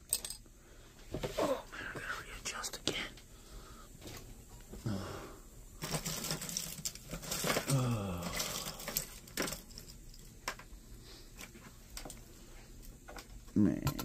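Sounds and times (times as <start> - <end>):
plastic parts clicking and cracking: 5.8 - 10.7
person muttering: 7.6 - 9.0.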